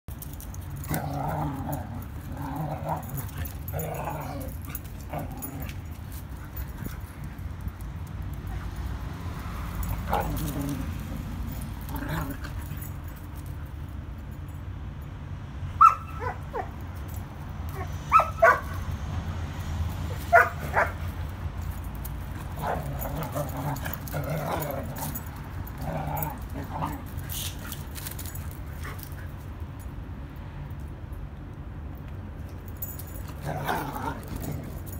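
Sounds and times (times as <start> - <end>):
dogs barking: 17.8 - 18.8, 20.2 - 21.1.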